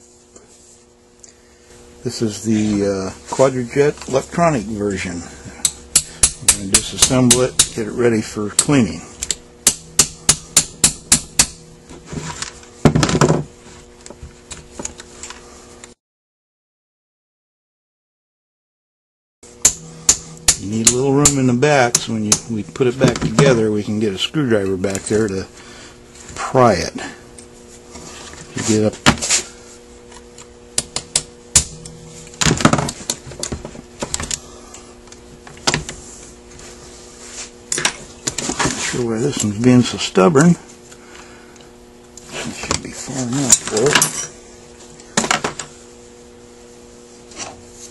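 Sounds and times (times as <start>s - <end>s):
metal tools clicking and scraping: 43.5s - 44.4s.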